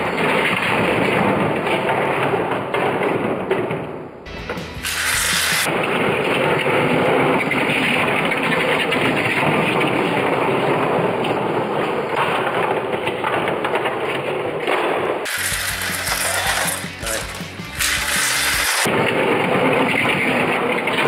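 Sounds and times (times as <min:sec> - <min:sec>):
toy slot cars whirring on track: 0:04.8 - 0:05.7, 0:15.3 - 0:18.9.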